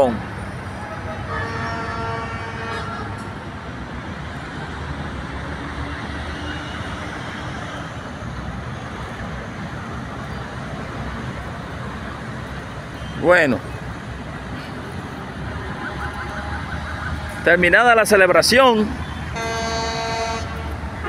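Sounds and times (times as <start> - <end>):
road traffic rumble: 0.0 - 21.0
car horn: 0.8 - 3.3, 15.7 - 17.3, 19.3 - 21.0.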